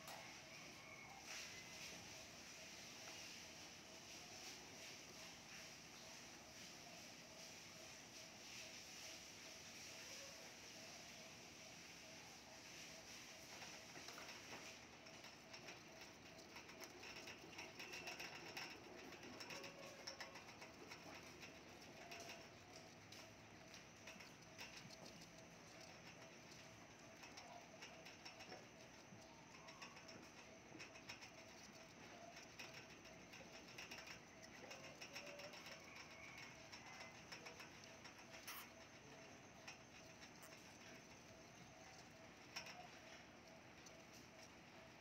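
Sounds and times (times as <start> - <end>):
hamsters rustling in bedding: 0.0 - 6.3
hamsters scratching and rustling: 0.0 - 45.0.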